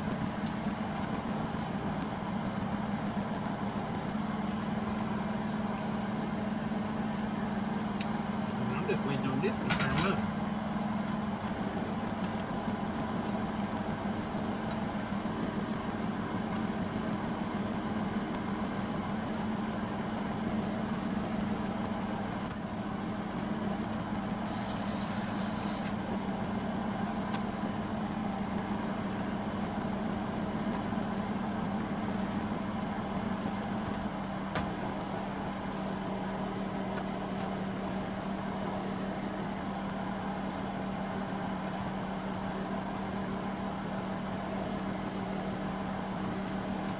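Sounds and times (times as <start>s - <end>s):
low mechanical hum: 0.0s - 46.9s
brief hiss: 24.5s - 26.0s.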